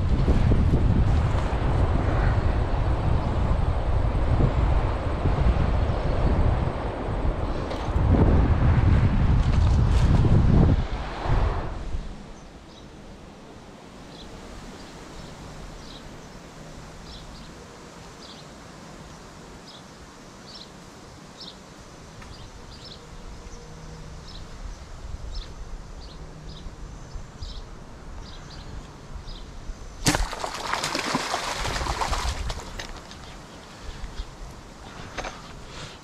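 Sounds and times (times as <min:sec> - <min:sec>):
wind on microphone: 0:00.0 - 0:12.6, 0:29.0 - 0:35.8.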